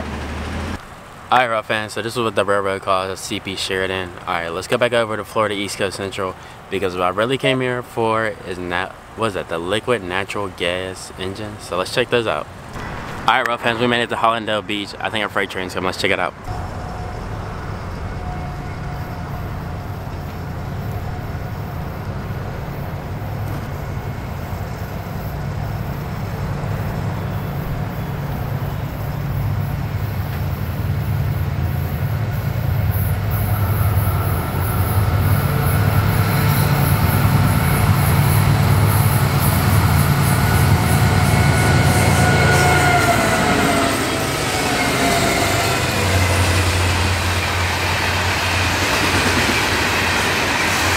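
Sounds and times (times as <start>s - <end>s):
diesel locomotive engine rumble: 0.0s - 7.3s, 8.4s - 50.9s
locomotive whine dropping in pitch: 16.4s - 50.9s.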